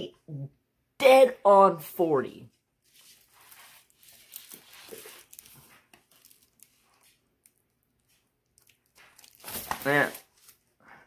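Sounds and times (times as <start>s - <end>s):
plastic film crinkling: 2.8s - 10.7s.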